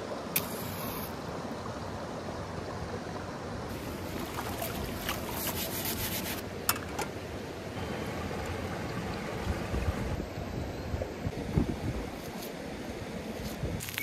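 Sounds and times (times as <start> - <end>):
stream flowing over stones: 0.0 - 6.6
greens splashing in water: 3.7 - 6.2.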